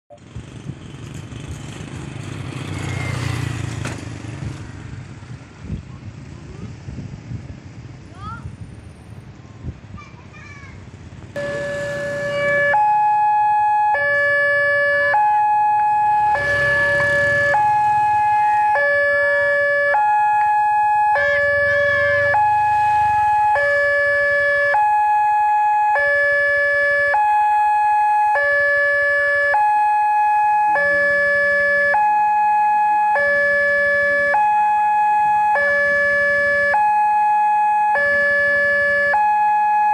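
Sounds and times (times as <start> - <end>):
level crossing two-tone alarm: 11.4 - 39.9.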